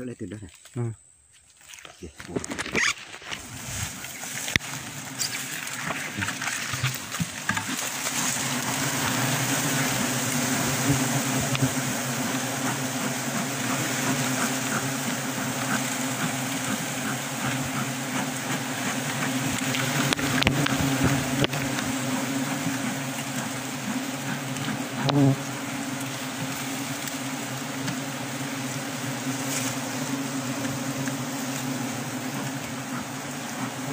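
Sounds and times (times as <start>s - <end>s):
bees buzzing: 2.3s - 33.9s
smoker hissing: 2.8s - 33.9s.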